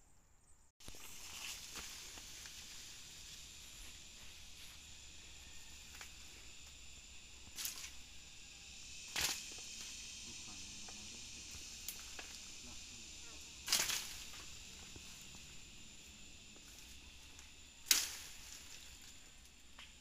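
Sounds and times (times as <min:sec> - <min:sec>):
high insect hum: 0:00.0 - 0:20.0
footsteps crackling through undergrowth: 0:00.8 - 0:06.7, 0:13.6 - 0:20.0.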